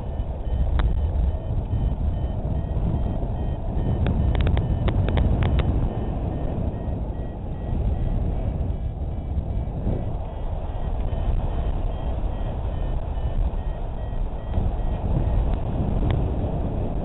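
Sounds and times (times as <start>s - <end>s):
variometer high beeps: 0.0s - 15.7s
wind rushing over microphone: 0.0s - 17.0s
sharp clicks: 3.8s - 5.8s.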